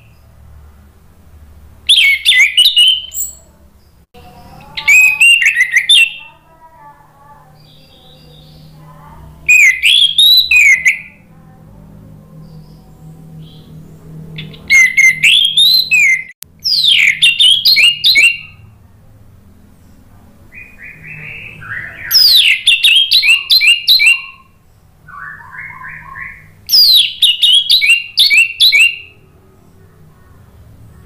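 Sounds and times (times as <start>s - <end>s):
soft bird chirping: 1.8s - 18.7s, 19.6s - 31.0s
bird whistled song: 1.9s - 3.5s, 4.6s - 6.3s, 9.4s - 11.2s, 14.4s - 18.6s, 20.5s - 29.2s.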